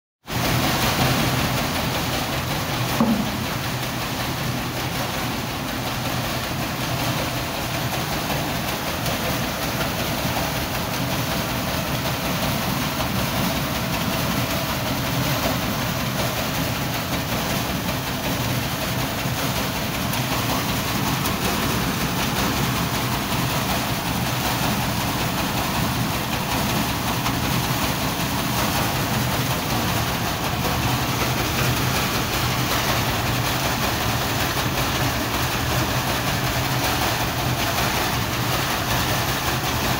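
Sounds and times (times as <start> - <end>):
vibrating sieve rattling: 0.2 - 39.9
low machine hum: 0.3 - 39.9
knock: 3.0 - 3.4.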